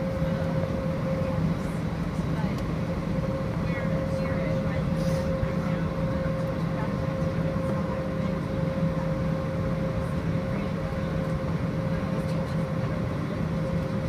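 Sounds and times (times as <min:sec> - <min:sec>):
constant hum: 0:00.0 - 0:14.0
jet engines droning: 0:00.0 - 0:14.0.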